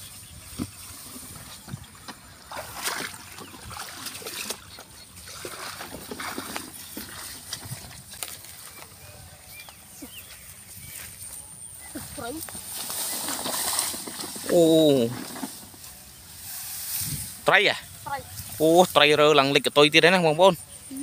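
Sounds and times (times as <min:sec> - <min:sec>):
tall grass rustling: 0:00.0 - 0:04.6, 0:05.2 - 0:19.4
splashing in shallow muddy water: 0:01.1 - 0:08.9.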